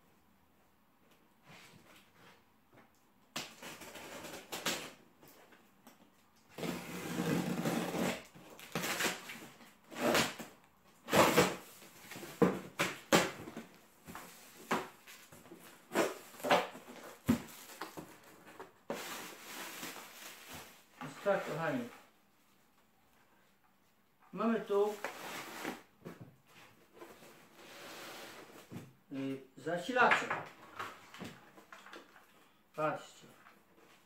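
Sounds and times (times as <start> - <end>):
packing tape ripping: 6.6 - 11.6.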